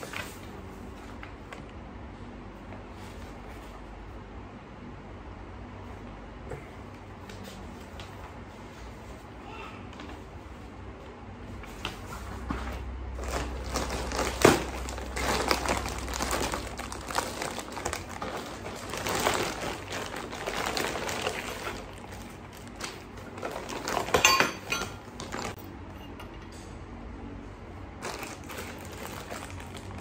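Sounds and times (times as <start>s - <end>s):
paper rustling: 0.0s - 1.5s
plastic packaging crinkling: 13.2s - 25.6s, 28.0s - 30.0s.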